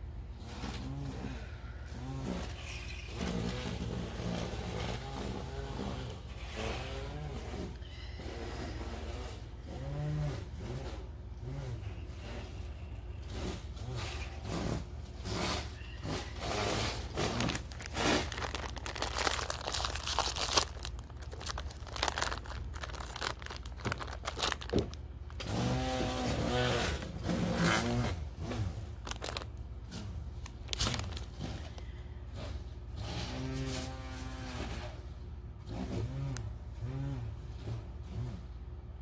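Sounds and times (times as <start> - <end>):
rustling and crinkling handling: 13.2 - 26.2, 27.0 - 35.0.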